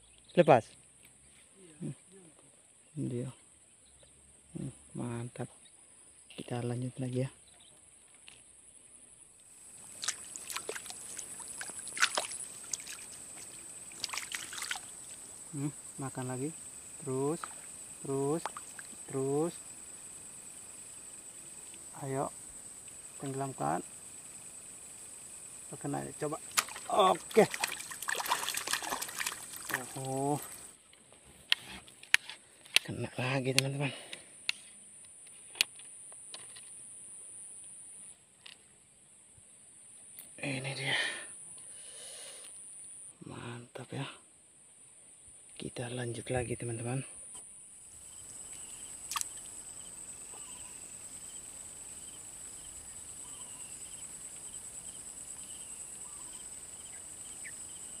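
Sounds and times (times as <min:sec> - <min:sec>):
high-pitched insect drone: 0:09.6 - 0:30.8, 0:47.8 - 0:58.0
water splashing and dripping: 0:09.8 - 0:15.4, 0:17.0 - 0:19.4, 0:26.2 - 0:30.7, 0:48.5 - 0:49.6.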